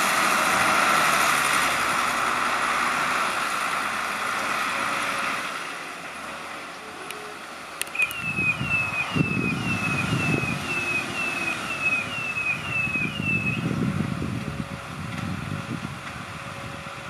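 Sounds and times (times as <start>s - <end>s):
tractor diesel engine revving: 0.0s - 17.0s
short high downward chirps: 7.9s - 13.6s.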